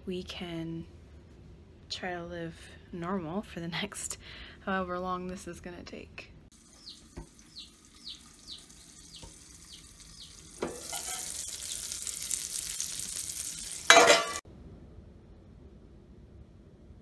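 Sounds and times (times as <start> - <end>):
high falling chirps: 6.5 - 13.8
meat patties sizzling: 6.5 - 14.4.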